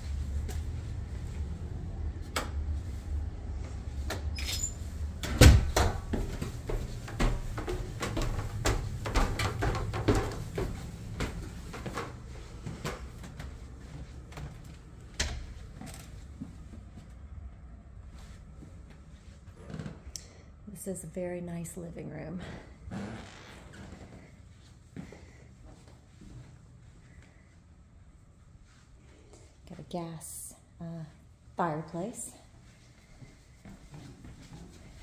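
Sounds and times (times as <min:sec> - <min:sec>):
footsteps on wooden stairs: 0:05.5 - 0:16.6.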